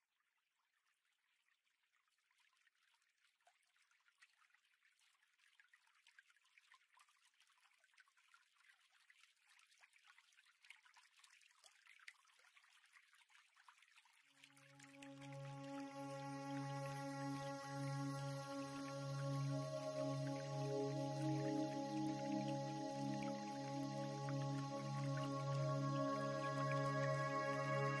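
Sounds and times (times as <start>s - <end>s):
trickling water with drips: 0.7s - 28.0s
soft sustained music tones: 14.4s - 28.0s.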